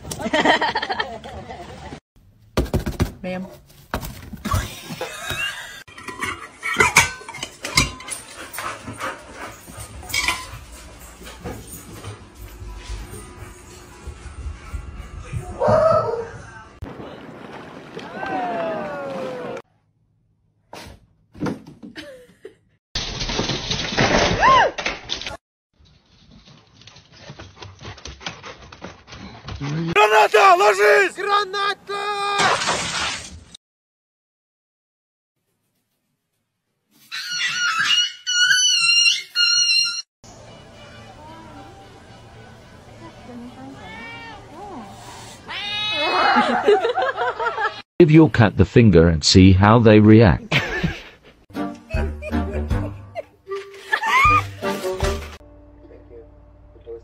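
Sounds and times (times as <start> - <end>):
dishes clinking: 5.9 - 8.8.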